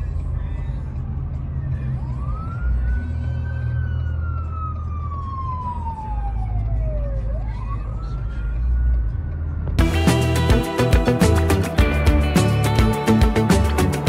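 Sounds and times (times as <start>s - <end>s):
engine and traffic rumble: 0.0s - 14.0s
siren wailing: 1.9s - 9.5s.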